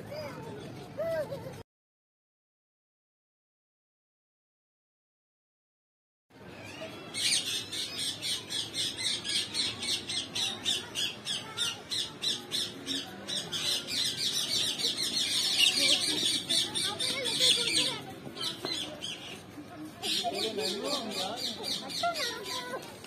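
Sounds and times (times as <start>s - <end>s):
chorus of birds calling: 6.6s - 19.4s, 20.0s - 22.7s.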